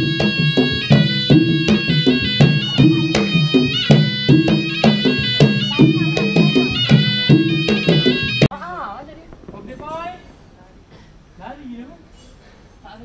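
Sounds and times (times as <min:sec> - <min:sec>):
shrill reed pipe melody: 0:00.0 - 0:08.5
drum strikes: 0:00.0 - 0:08.6.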